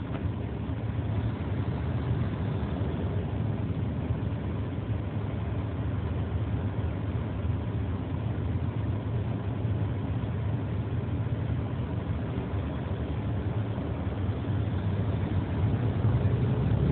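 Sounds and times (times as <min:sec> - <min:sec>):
road noise: 0:00.0 - 0:16.9
truck engine hum: 0:00.0 - 0:16.9.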